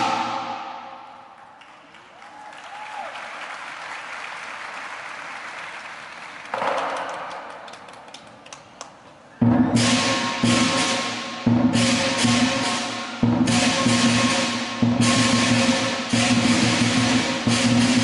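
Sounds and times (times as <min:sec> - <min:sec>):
audience applauding: 0:01.4 - 0:08.6.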